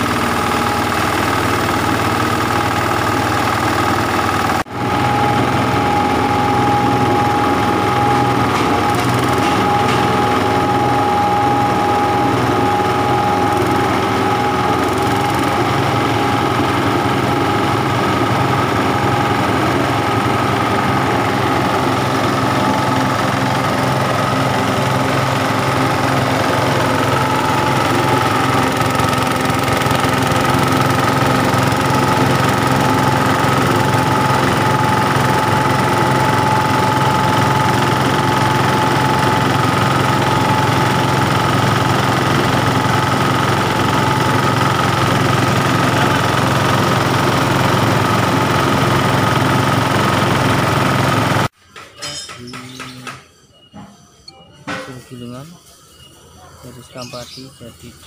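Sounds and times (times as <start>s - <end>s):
chopper machine droning: 0.0s - 51.5s.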